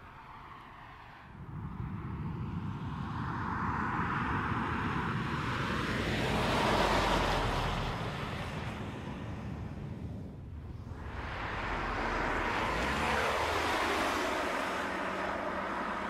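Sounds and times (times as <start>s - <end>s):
car driving past: 10.5s - 16.0s.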